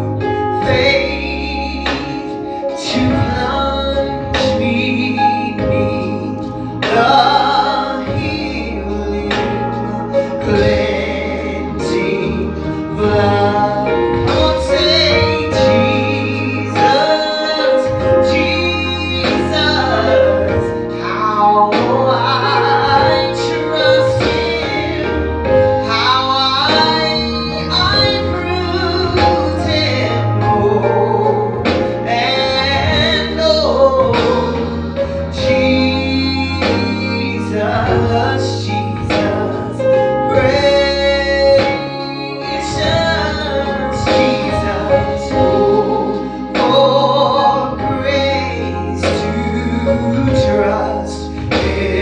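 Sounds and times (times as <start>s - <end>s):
instrumental accompaniment with beat: 0.0s - 52.0s
woman singing into microphone: 0.0s - 52.0s.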